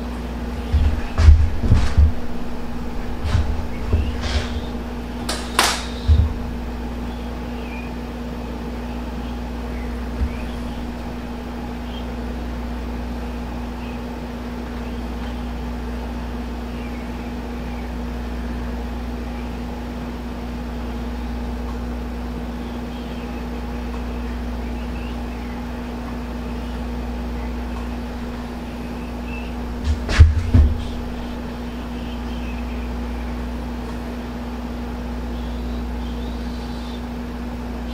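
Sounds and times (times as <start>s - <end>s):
deep rumble: 0.0s - 7.8s, 9.6s - 12.6s, 28.1s - 33.3s
mechanical hum: 0.0s - 37.9s
short low thump: 0.6s - 7.0s, 10.1s - 11.5s, 29.6s - 31.7s.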